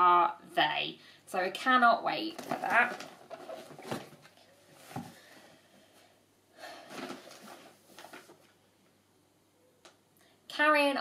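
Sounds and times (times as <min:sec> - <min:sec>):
bag rustling: 0:02.3 - 0:05.4, 0:06.8 - 0:08.5.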